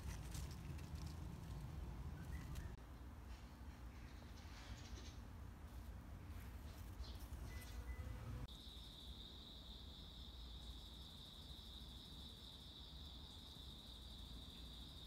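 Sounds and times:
insects trilling: 0:07.6 - 0:15.0.

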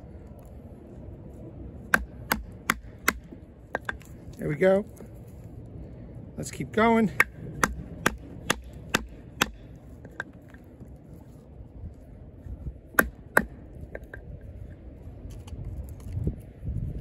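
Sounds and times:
wooden baton knocking knife spine: 0:01.9 - 0:04.1.

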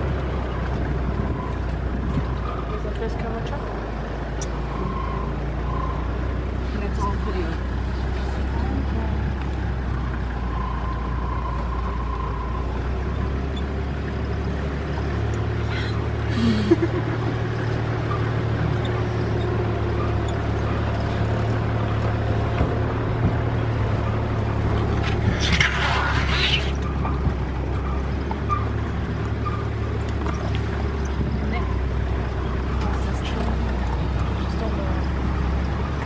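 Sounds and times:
vehicle engine running: 0:00.0 - 0:36.0
rustling scrapes: 0:25.0 - 0:26.9.

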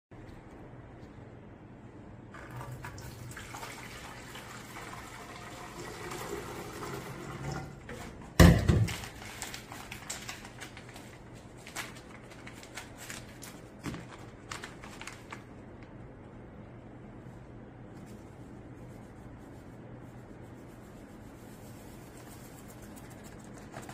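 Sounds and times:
jug knocking on counter: 0:08.4 - 0:08.9
paper bag crinkling: 0:08.7 - 0:15.9, 0:21.4 - 0:23.9.

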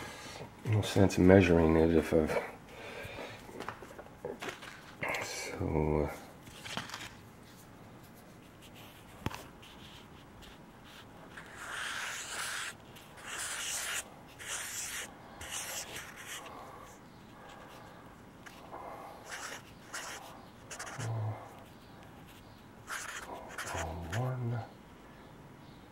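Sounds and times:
marker writing on paper: 0:08.2 - 0:17.6, 0:19.2 - 0:24.3.

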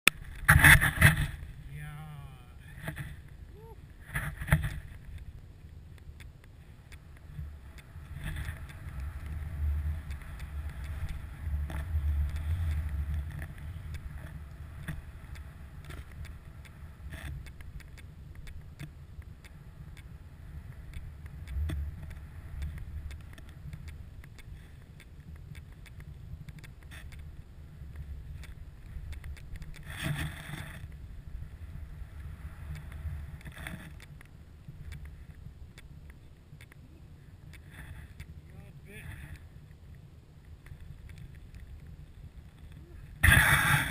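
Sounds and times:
wind rumble on microphone: 0:00.1 - 0:43.9
snowboard hissing through snow: 0:43.2 - 0:43.9.

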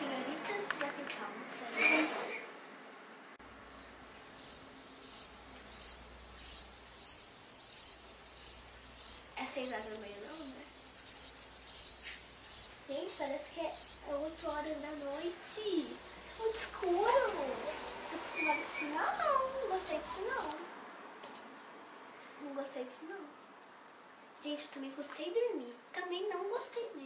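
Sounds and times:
cricket chirping: 0:03.4 - 0:20.6.

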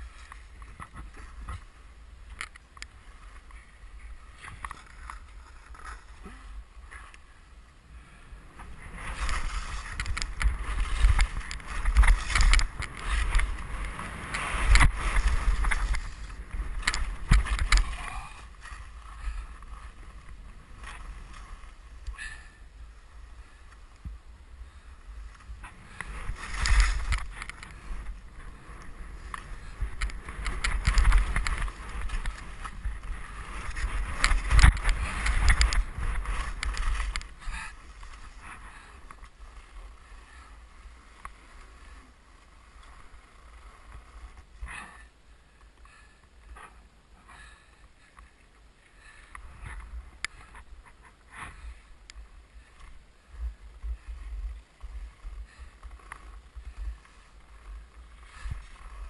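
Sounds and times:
skis scraping through snow: 0:02.6 - 0:44.8, 0:48.0 - 0:59.0
wind buffeting microphone: 0:08.3 - 0:40.4.

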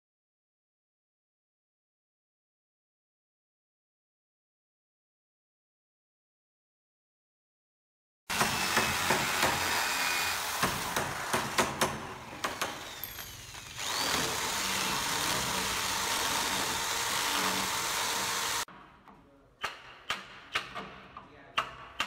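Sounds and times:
electric drill boring into wood: 0:08.3 - 0:18.7.

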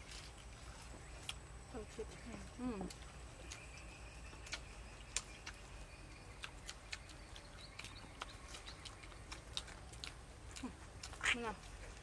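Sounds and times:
mouth clicks and smacks chewing: 0:02.9 - 0:12.0.

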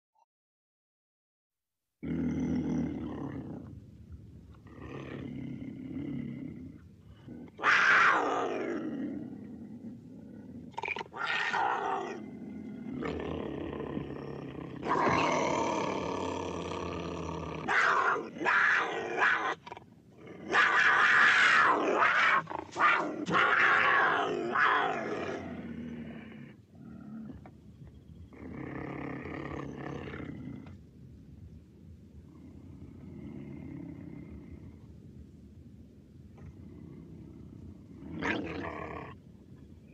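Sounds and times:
cougar rough cries: 0:07.2 - 0:09.3, 0:10.6 - 0:26.6.

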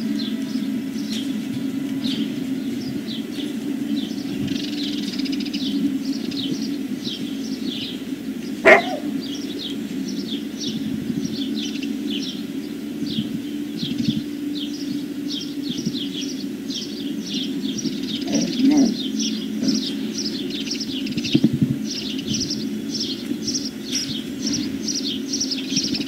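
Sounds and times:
small birds chirping: 0:00.0 - 0:26.0
steady low hum: 0:00.0 - 0:26.0
dog bark: 0:08.6 - 0:09.2.

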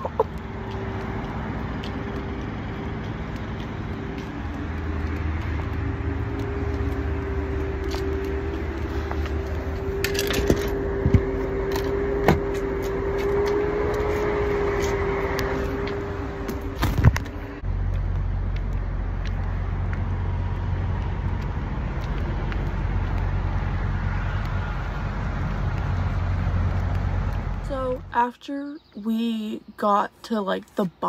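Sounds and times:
truck engine idling: 0:00.0 - 0:13.0.

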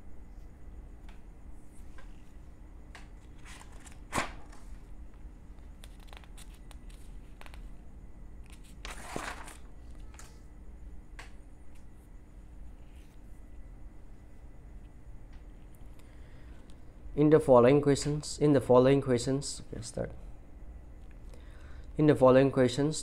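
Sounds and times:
paper pages rustling: 0:03.2 - 0:04.8, 0:05.7 - 0:07.7, 0:08.5 - 0:10.4.

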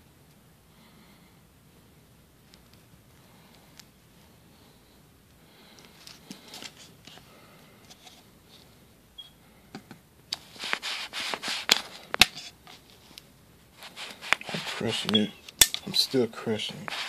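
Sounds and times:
plastic bottle crinkling: 0:13.8 - 0:16.0.

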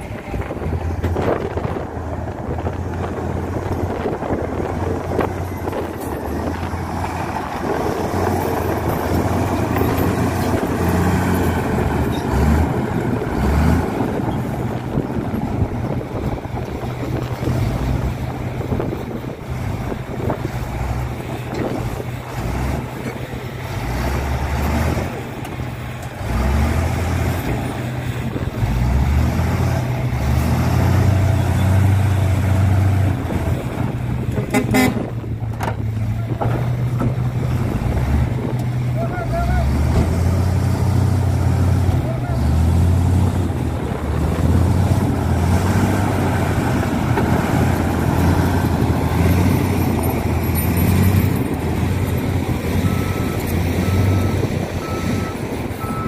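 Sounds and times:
diesel engines droning: 0:00.0 - 0:56.0
short horn toot: 0:34.5 - 0:35.1.

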